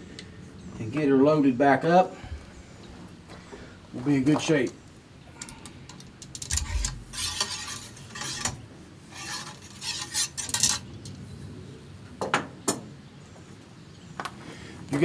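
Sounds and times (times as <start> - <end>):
metal clinking and scraping: 5.4 - 11.2.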